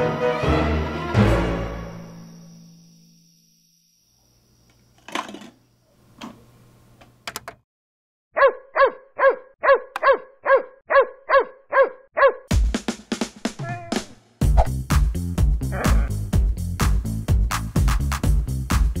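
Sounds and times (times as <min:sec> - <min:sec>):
dog barking yappily: 0:08.4 - 0:12.5.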